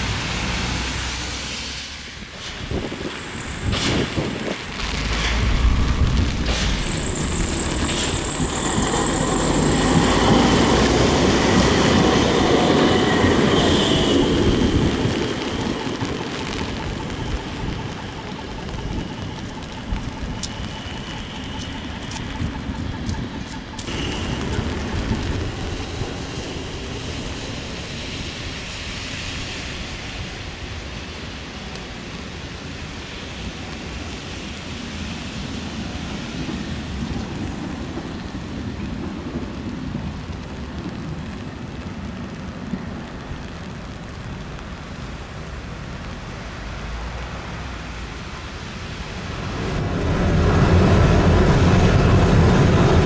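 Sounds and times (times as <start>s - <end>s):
tram rumbling along track: 0.0s - 53.0s
high hiss: 0.4s - 19.5s
tram clicks: 2.3s - 28.6s.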